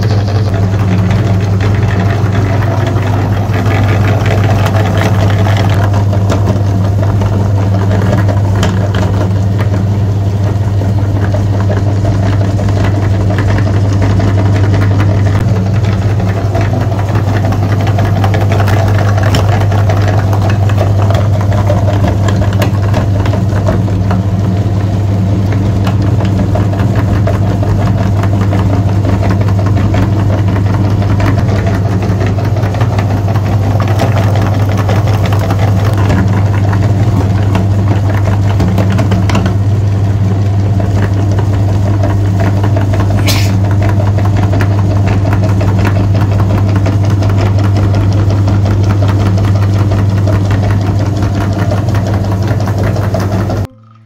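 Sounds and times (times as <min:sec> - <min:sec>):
soap crunching in grinder: 0:00.0 - 0:53.7
meat grinder motor hum: 0:00.0 - 0:54.0.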